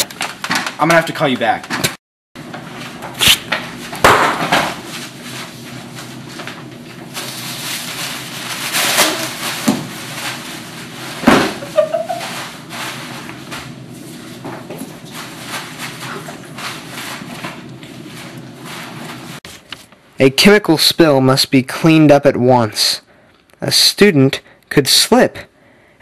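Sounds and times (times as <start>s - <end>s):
objects knocking and banging: 3.0s - 4.9s, 11.2s - 13.7s
hissing noise: 3.2s - 3.5s.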